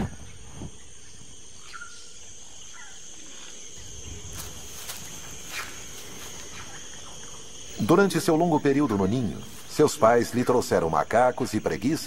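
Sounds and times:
falling whistled bird calls: 0.0s - 3.0s
high-pitched insect drone: 0.0s - 12.0s.

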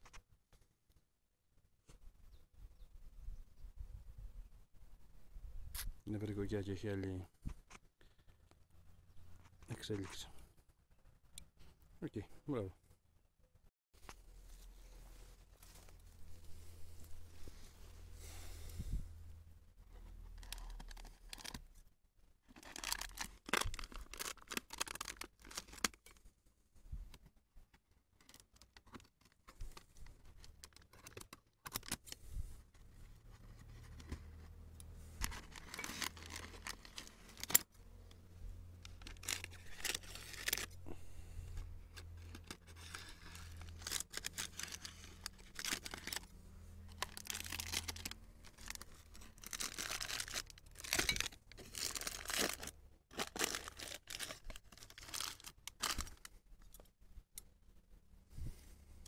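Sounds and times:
plastic bag rustling: 22.5s - 26.0s, 35.0s - 37.8s, 38.8s - 41.0s, 41.9s - 56.3s.

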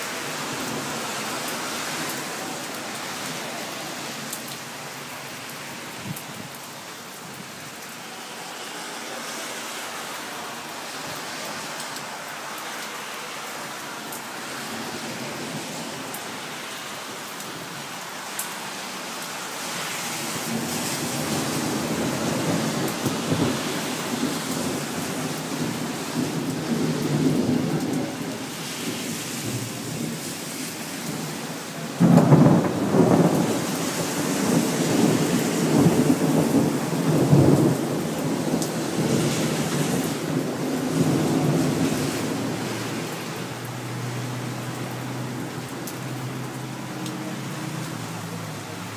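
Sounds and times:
steady rain hiss: 0.0s - 48.9s
thunder rumbling: 20.4s - 30.2s, 32.0s - 42.6s
loud thunderclap: 32.0s - 39.3s.

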